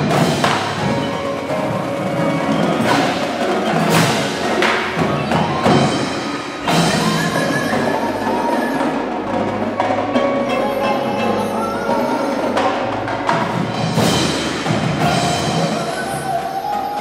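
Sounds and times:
drums: 0.0 - 17.0
marimbas and vibraphones: 0.0 - 17.0.

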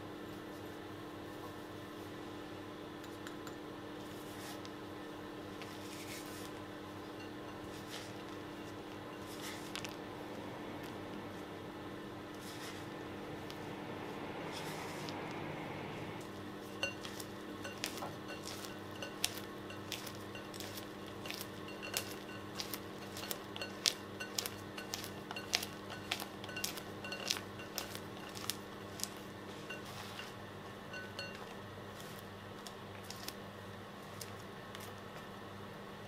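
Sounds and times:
spatula scraping glass bowl: 16.6 - 31.5.

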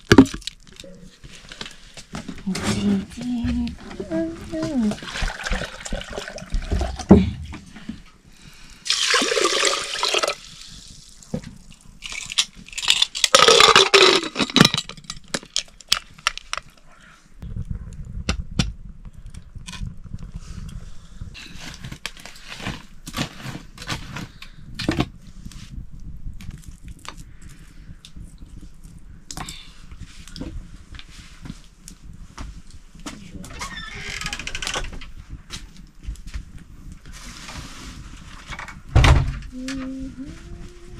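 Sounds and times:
water pouring and splashing: 4.8 - 7.2, 8.9 - 11.3.

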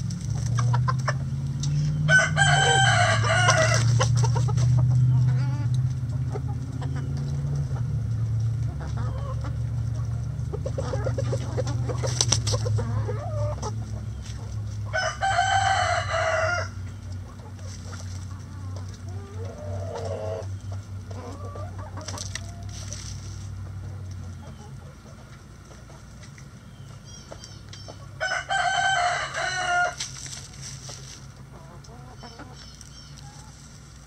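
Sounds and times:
chickens clucking: 0.0 - 34.0
rooster crowing: 2.0 - 3.9, 14.9 - 16.8, 28.2 - 30.0.

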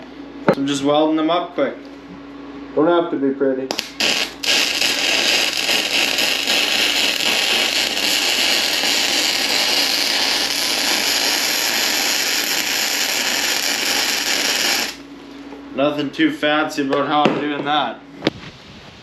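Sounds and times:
electric arc welding hiss: 3.7 - 15.1.

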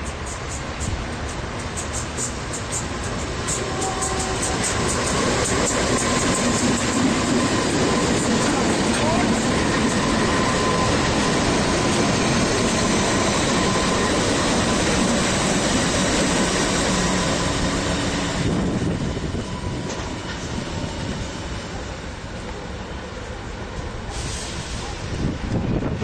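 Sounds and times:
diesel locomotive engine rumble: 0.0 - 26.0.

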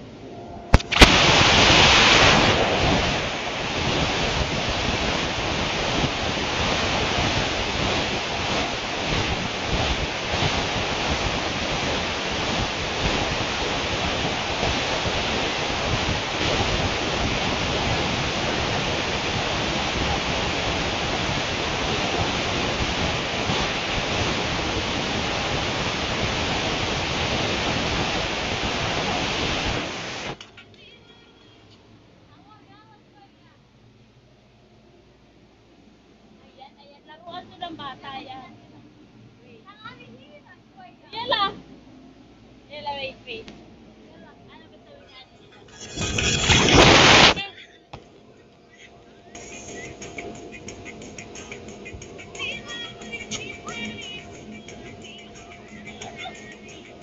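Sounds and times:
blower rushing air: 0.0 - 30.4, 45.6 - 47.4, 49.0 - 57.0.

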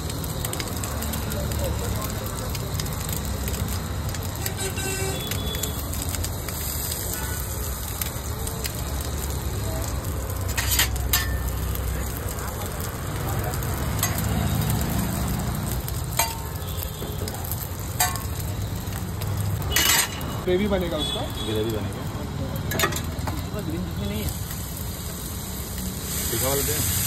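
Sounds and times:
eggs sizzling in a pan: 0.0 - 27.0
utensil clicking against pan: 13.6 - 14.3.

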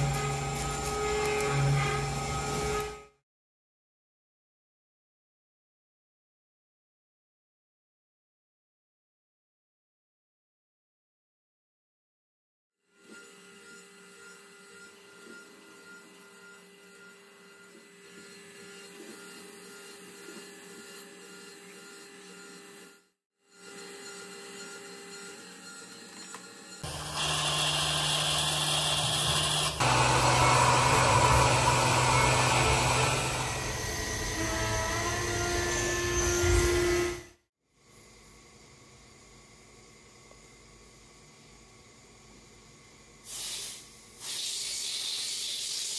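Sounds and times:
metal lathe whining: 23.6 - 37.1.

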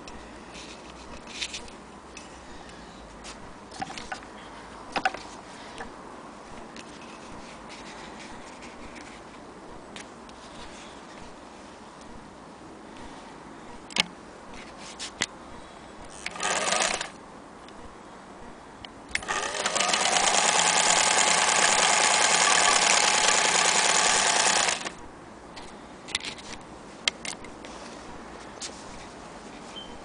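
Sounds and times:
sewing machine stitching: 16.2 - 17.2, 19.2 - 25.0.

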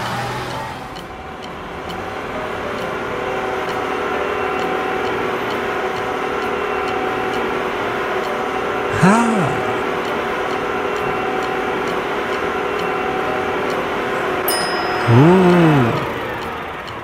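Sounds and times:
cartoon excavator hum with ticking: 0.0 - 17.0
pitched sound gliding up and down: 14.6 - 16.6.

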